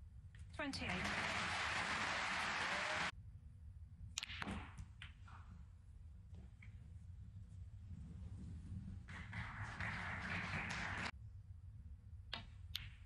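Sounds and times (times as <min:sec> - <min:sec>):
audience applause: 0:00.8 - 0:03.1, 0:09.1 - 0:11.1
snooker balls clicking: 0:12.3 - 0:13.0.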